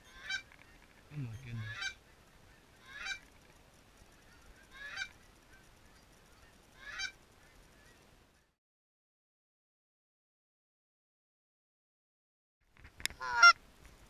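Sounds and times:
geese honking: 0.0s - 0.8s, 1.4s - 3.3s, 4.2s - 8.0s, 13.1s - 13.6s.

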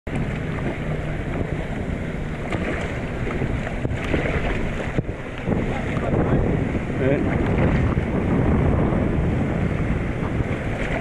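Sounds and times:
water splashing and lapping: 0.1s - 11.0s
wind buffeting microphone: 0.1s - 11.0s.

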